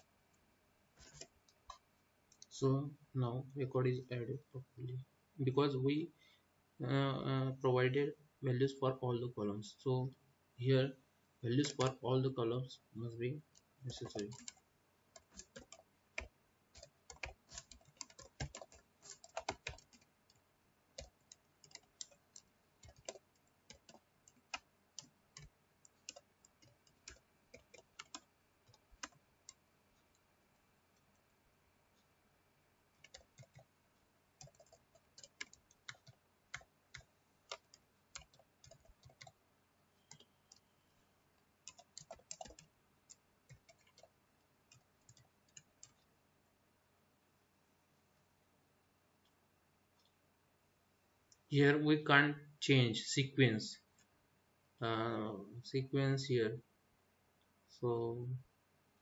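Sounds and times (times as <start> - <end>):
computer keyboard typing: 1.0 - 2.5, 11.5 - 12.0, 13.5 - 30.2, 33.0 - 33.7, 34.4 - 39.4, 40.1 - 40.6, 41.6 - 46.1.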